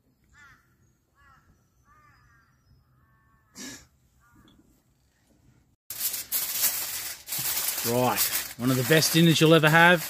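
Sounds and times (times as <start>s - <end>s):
aluminium foil crinkling: 5.9s - 10.0s.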